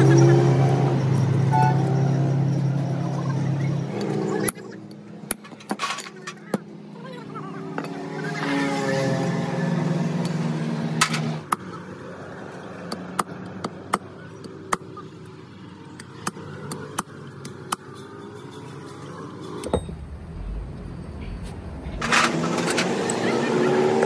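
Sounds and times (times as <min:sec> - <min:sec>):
vehicle engine humming: 0:14.6 - 0:24.0.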